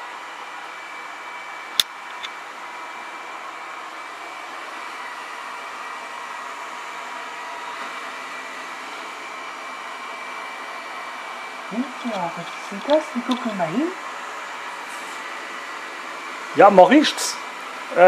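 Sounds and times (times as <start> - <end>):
robot vacuum whirring: 11.7 - 13.9.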